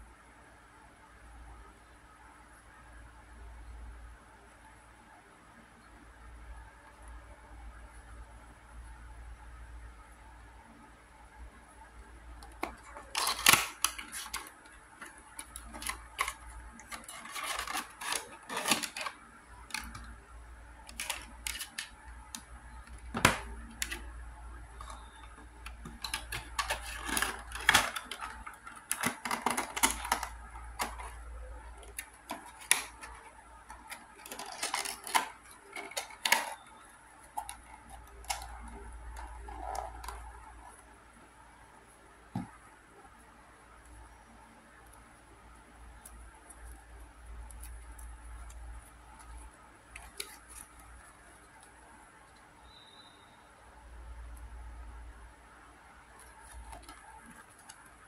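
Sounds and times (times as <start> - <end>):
plastic and cardboard crinkling: 12.4 - 41.0, 45.9 - 52.4, 56.1 - 58.0.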